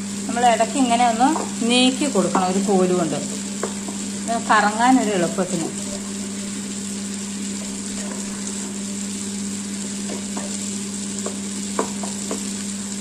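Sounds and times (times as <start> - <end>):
wet grinder motor humming: 0.0 - 13.0
stone rollers churning batter: 7.2 - 13.0.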